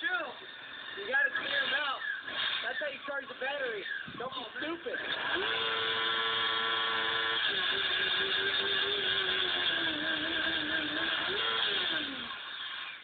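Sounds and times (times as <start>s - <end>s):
motorcycle engine revving high: 4.8s - 12.4s.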